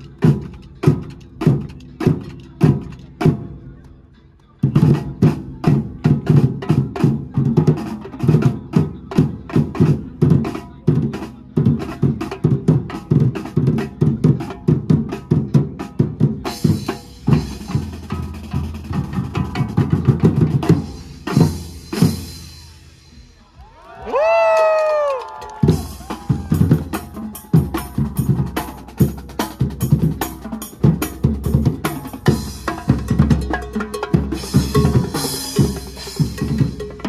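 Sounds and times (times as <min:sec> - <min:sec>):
fast dense drumming: 0:11.6 - 0:22.5, 0:25.6 - 0:37.0.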